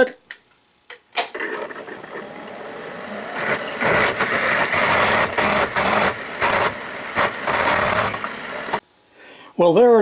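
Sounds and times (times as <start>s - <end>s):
drill bit cutting metal: 1.3s - 8.8s
drill press whine: 1.3s - 8.8s.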